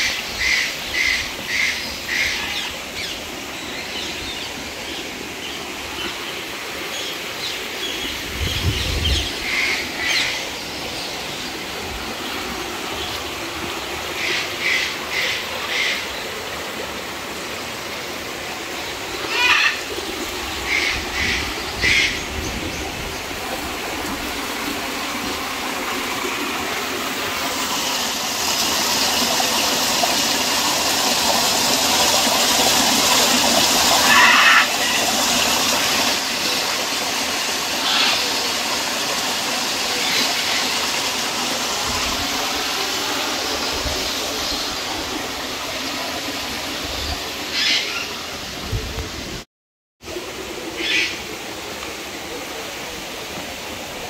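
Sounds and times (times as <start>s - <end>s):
stream running over rocks: 0.0s - 54.0s
bird calls: 47.5s - 48.2s.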